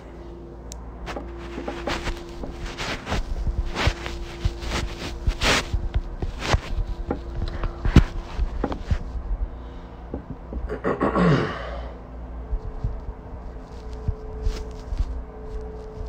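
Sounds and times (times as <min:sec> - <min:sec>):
person sighing: 0:10.7 - 0:12.0.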